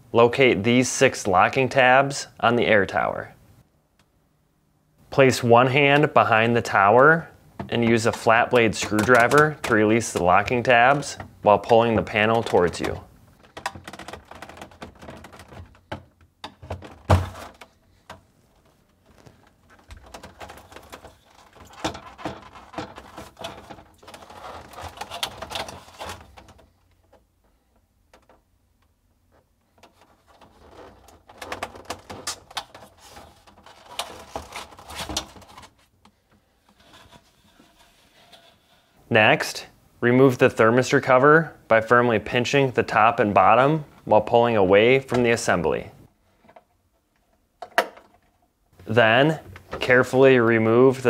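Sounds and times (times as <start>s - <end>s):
plastic panel rattling: 7.6s - 28.5s, 29.4s - 38.6s.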